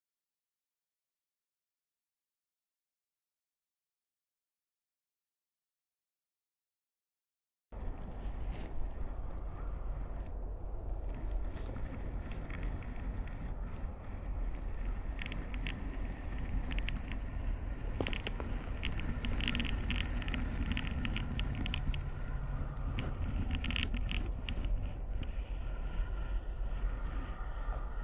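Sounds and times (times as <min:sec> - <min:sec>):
camera sliding along twine rumbling: 0:14.7 - 0:25.4.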